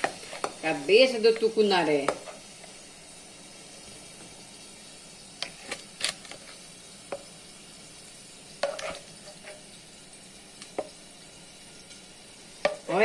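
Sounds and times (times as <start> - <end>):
wooden spoon scraping a pan: 0.0 - 2.8, 5.4 - 6.6, 8.6 - 9.7
hot oil sizzling: 0.0 - 13.0
wooden spoon knocking on a pan: 1.4 - 2.3, 10.7 - 11.0, 12.6 - 12.9.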